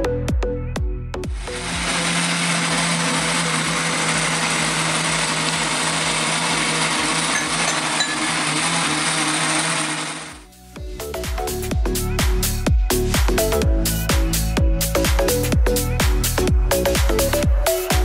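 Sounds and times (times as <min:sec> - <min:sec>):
blender whirring: 0:01.3 - 0:10.5.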